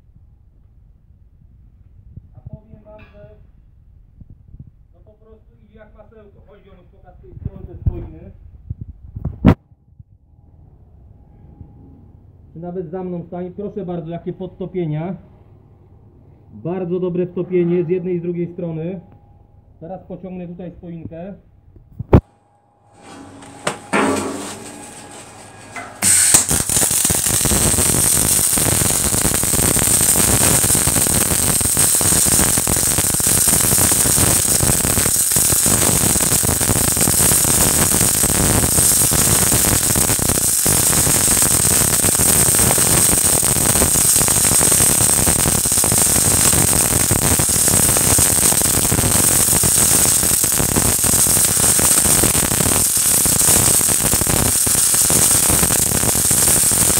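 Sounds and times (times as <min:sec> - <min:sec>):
welding arc crackling hiss: 0:23.3 - 0:56.9.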